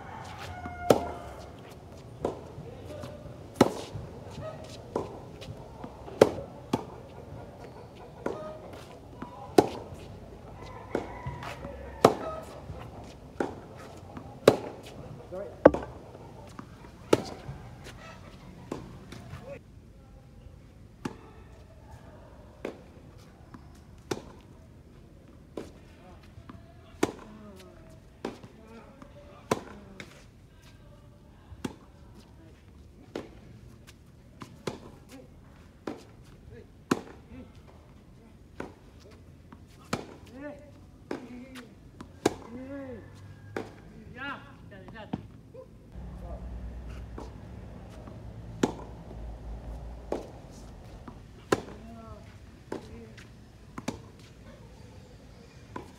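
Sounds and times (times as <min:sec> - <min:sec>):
tennis racket hitting ball: 0:00.3 - 0:10.1, 0:10.9 - 0:18.0, 0:45.9 - 0:54.3
distant ball hits and bounces: 0:00.5 - 0:01.5, 0:03.6 - 0:09.9, 0:10.9 - 0:18.0, 0:46.0 - 0:52.0.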